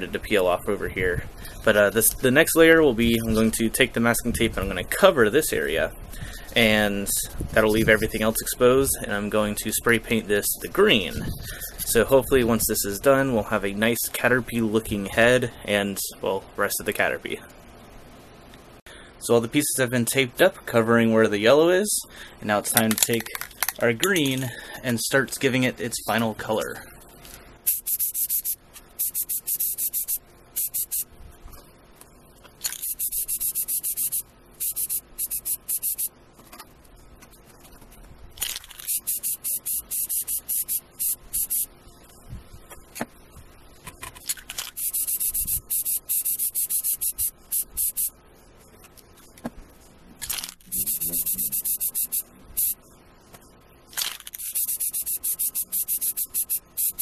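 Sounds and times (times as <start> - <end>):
spray paint can hissing: 27.7 - 31.0, 32.7 - 36.1, 38.9 - 41.7, 44.7 - 48.1, 50.6 - 52.8, 54.4 - 57.0.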